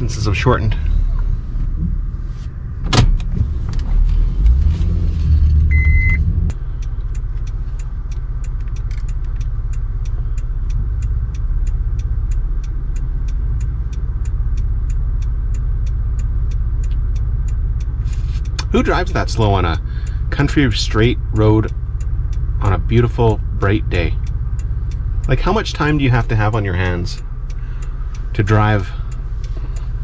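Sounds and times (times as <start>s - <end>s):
truck engine and road rumble: 0.0s - 30.0s
short beep: 5.7s - 6.2s
indicator ticking: 5.7s - 30.0s.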